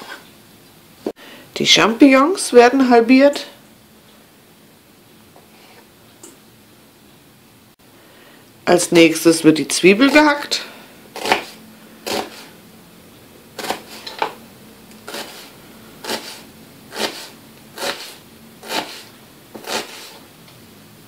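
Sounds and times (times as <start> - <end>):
knife cutting onion on cutting board: 11.2 - 12.5, 13.6 - 14.4, 15.0 - 20.2.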